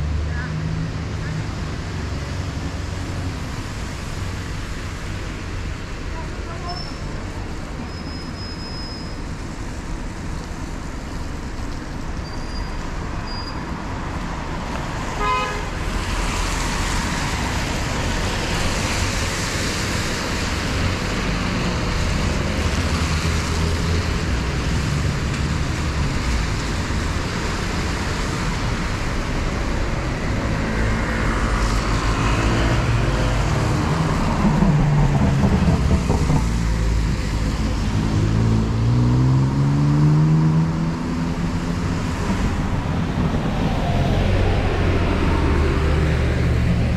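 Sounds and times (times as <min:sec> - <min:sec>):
bus and car engines rumbling: 0:00.0 - 0:46.9
tyres hissing on wet road: 0:00.5 - 0:46.9
car horn toot: 0:15.2 - 0:15.6.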